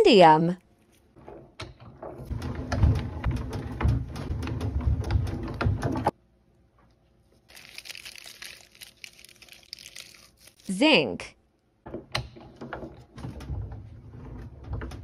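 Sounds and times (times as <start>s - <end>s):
rolling mill rumbling and clicking: 2.1s - 6.1s
metal foil crinkling by hand: 7.4s - 10.8s.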